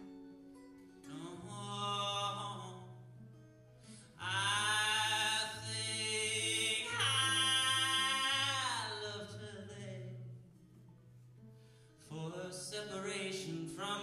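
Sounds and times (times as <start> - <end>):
acoustic guitar: 0.0 - 14.0
man singing long notes: 1.1 - 2.9, 4.2 - 10.2.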